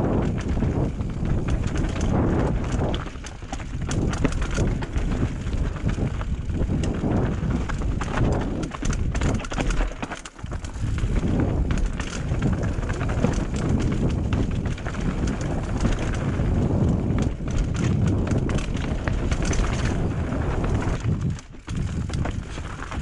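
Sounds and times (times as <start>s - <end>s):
bike knocks and rattles: 0.0s - 23.0s
tyres crunching over stones: 1.1s - 23.0s.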